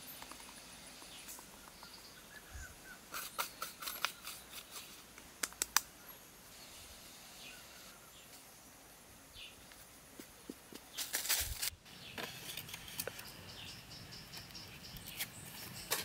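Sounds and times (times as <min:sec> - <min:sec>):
bird chirps: 0:00.0 - 0:04.9, 0:11.9 - 0:16.0
insect chirps: 0:00.0 - 0:16.0
bamboo pieces clicking and knocking: 0:03.1 - 0:05.9.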